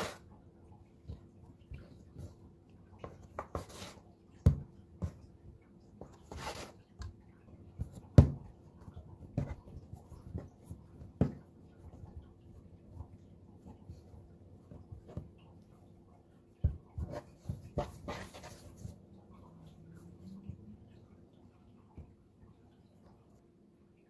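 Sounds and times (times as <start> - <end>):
brushing and scraping dough: 0.0 - 0.3, 1.7 - 5.3, 6.0 - 7.0, 16.7 - 19.1.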